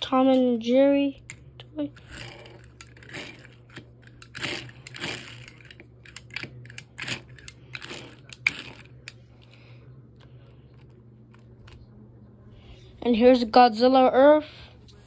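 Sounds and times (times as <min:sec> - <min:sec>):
toy clicking: 0:01.2 - 0:09.2.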